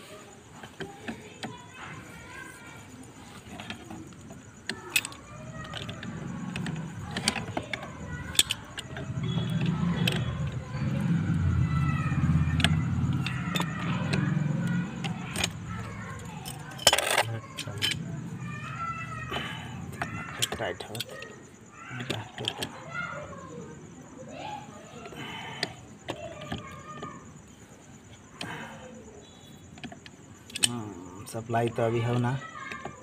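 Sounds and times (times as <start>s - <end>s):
wrench clinking and scraping metal: 0.5s - 22.9s, 29.5s - 33.0s.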